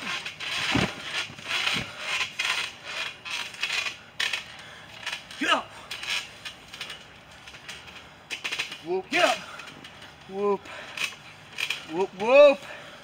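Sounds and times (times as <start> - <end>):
body thumping on trampoline: 0.0 - 2.6
trampoline springs creaking: 0.0 - 13.0.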